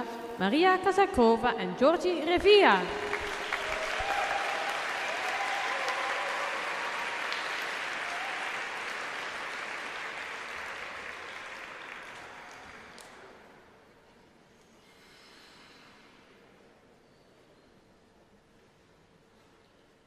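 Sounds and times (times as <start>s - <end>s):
audience applauding: 2.8s - 13.4s.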